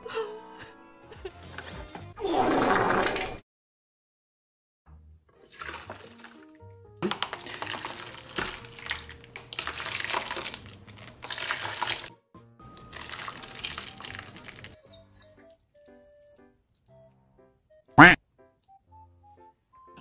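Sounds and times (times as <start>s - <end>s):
soft background music: 4.9s - 20.0s
sauce being poured: 7.2s - 12.1s, 12.7s - 14.8s.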